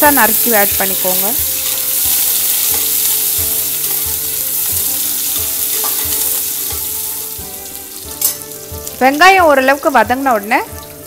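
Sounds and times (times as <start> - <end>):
food sizzling in hot oil: 0.0 - 11.0
metal ladle stirring: 5.0 - 6.9.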